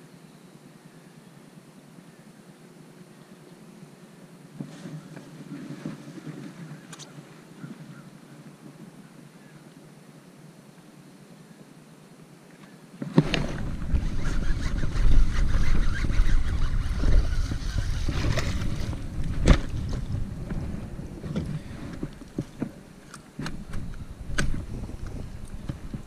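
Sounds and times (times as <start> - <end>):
wind on microphone: 13.0 - 26.0.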